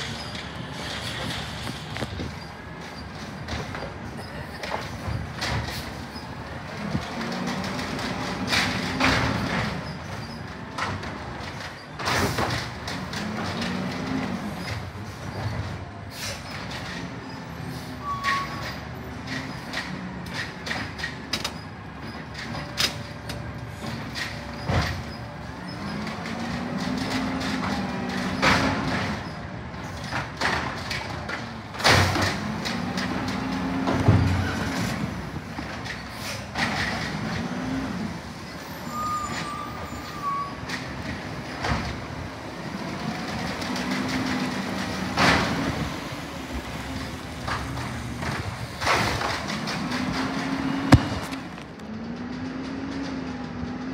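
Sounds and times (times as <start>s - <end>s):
cart clanking against hopper: 0.0s - 53.9s
diesel engine revving: 40.8s - 53.9s.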